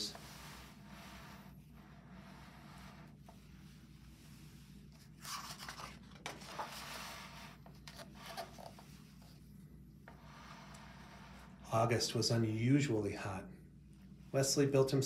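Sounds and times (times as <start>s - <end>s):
book page turning: 4.8s - 9.4s.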